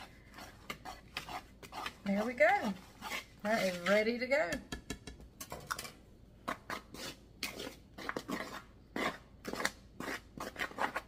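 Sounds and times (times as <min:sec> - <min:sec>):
whisk scraping in plastic bowl: 0:00.0 - 0:04.3, 0:06.5 - 0:11.0.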